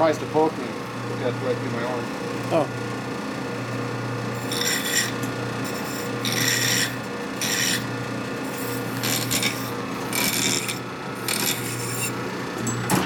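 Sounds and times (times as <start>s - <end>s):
metal file rasping: 4.4s - 7.9s, 8.5s - 12.2s.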